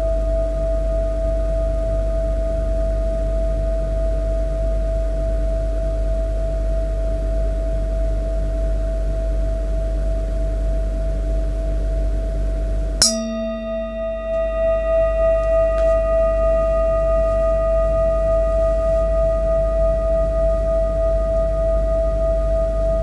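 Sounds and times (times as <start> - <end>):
singing bowl strike: 13.0 - 20.5
singing bowl ringing: 13.0 - 20.9.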